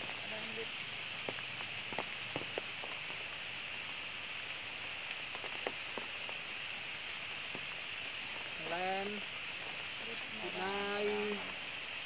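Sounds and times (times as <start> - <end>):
wet forest ambience hiss: 0.0 - 12.0.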